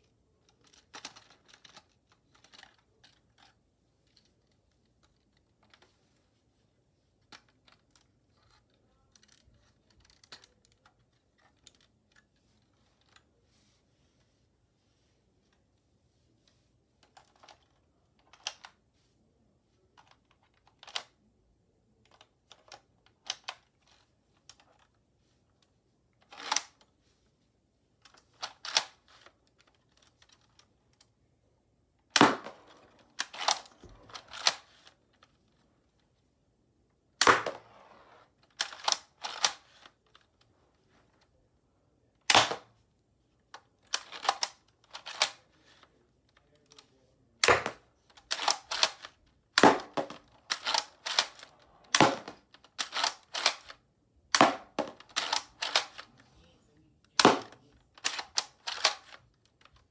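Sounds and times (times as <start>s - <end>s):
plastic toy gun clicks and snaps: 26.3s - 26.8s, 32.1s - 34.9s, 47.4s - 56.1s, 57.2s - 59.8s.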